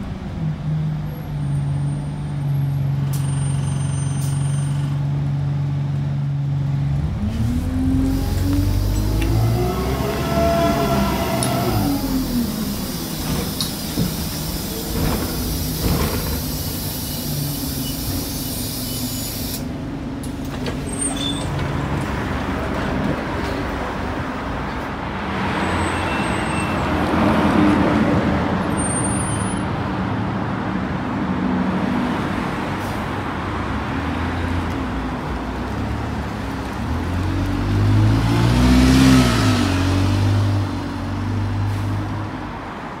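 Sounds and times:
bus engine running: 0.0s - 25.1s
bus accelerating: 0.0s - 43.0s.

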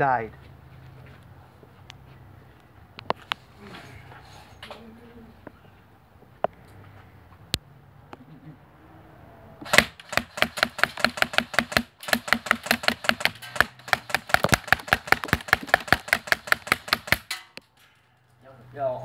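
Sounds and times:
airsoft rifle firing on full auto: 9.6s - 17.5s
pellets striking plastic: 9.7s - 17.6s.

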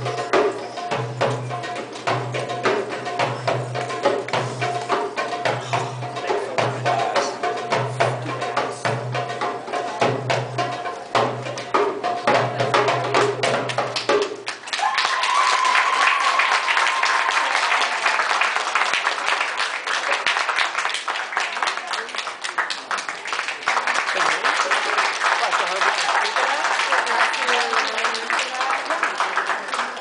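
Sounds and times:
belly dance music with hand drums: 0.0s - 19.4s
audience applause and cheering: 13.7s - 30.0s
high held cheer or whistle: 14.7s - 18.4s.

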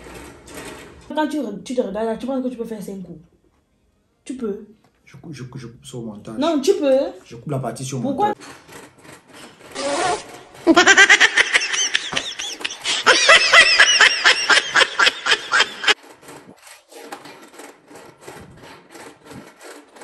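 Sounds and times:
person laughing: 10.7s - 16.0s.

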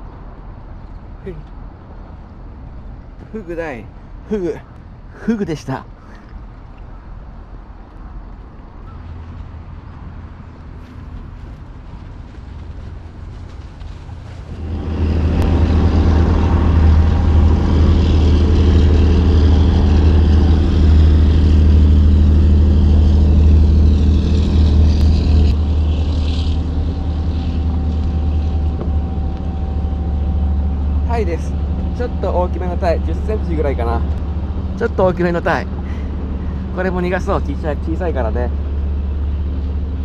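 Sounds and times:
motorboat engine passing: 9.0s - 40.0s.

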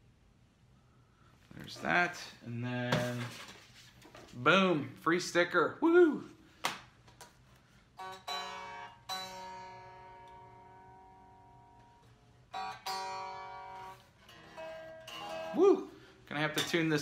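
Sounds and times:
unplugged electric guitar strummed: 8.0s - 15.7s.

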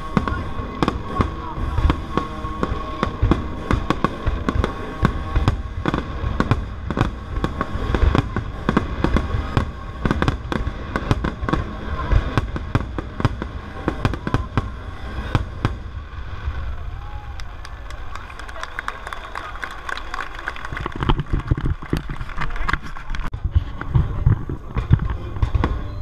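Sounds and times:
firework shells bursting: 0.0s - 16.4s.

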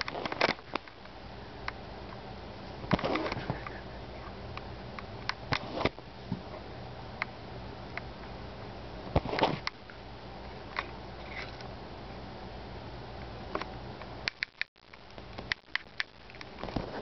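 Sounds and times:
faint low hum: 0.0s - 17.0s
quick clicks: 14.3s - 16.6s.

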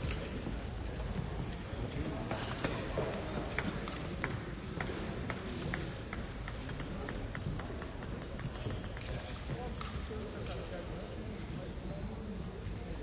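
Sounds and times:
table tennis ball bouncing: 3.2s - 10.0s.

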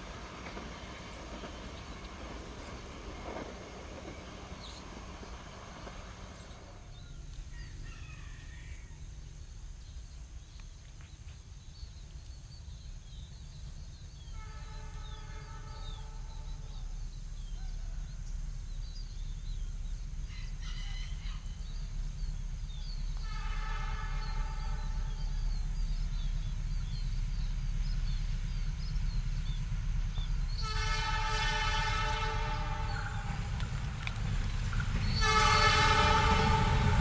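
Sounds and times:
birds chirping: 0.0s - 31.1s, 32.1s - 36.7s
diesel locomotive engine rumble: 0.0s - 37.0s
locomotive horn blasts: 14.3s - 16.6s, 23.1s - 25.3s, 30.6s - 33.5s, 35.0s - 37.0s.

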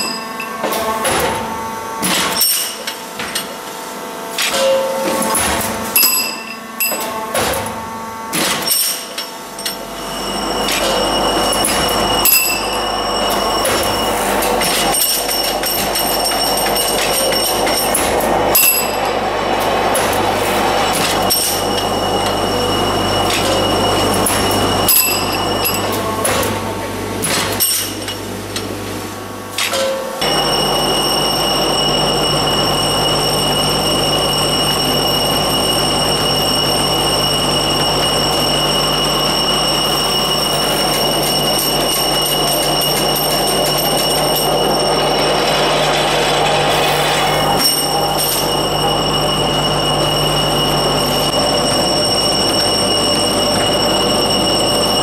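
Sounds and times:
feeding line hum with high whine: 0.0s - 55.0s
sharp machine clack: 4.3s - 7.7s, 8.3s - 28.2s, 29.6s - 55.0s
extrusion machine din: 30.2s - 55.0s.

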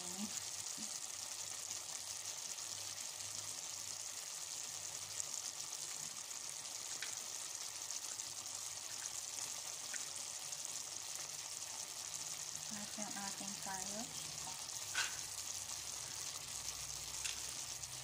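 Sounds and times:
food sizzling in a pot: 0.0s - 18.0s.

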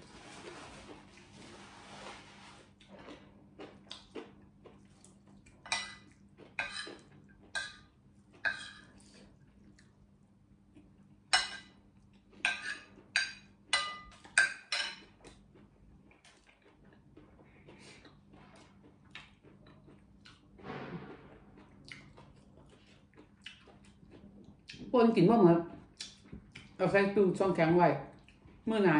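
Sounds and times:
tissue wiped at nose: 0.0s - 2.7s.

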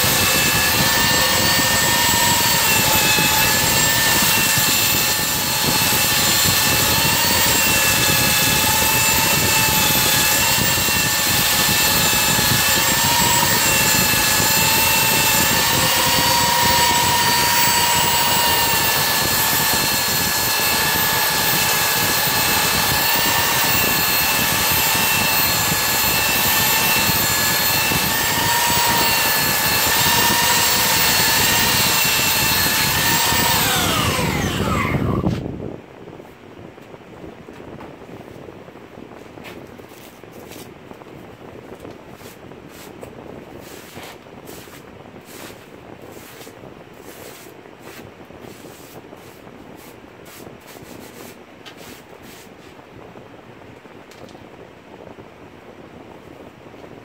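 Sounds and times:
belt sander whining on wood: 0.0s - 35.4s.

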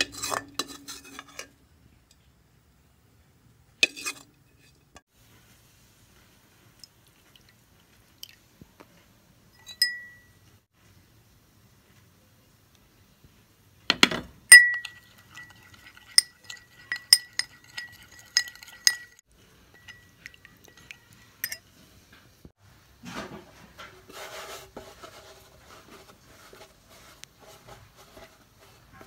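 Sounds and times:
spoon clinking glass bowl: 9.6s - 10.4s, 14.5s - 21.7s.

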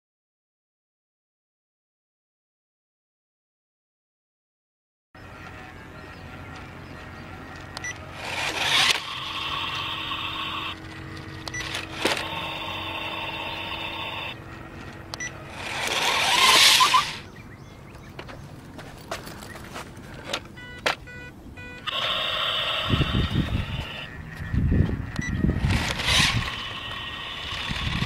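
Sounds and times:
small electric motor whining: 5.2s - 17.3s, 21.8s - 28.0s.

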